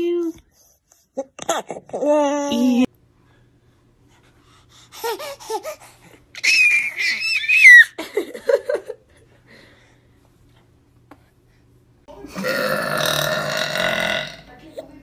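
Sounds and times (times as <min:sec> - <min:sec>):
baby's high-pitched squeal: 0:06.4 - 0:08.0.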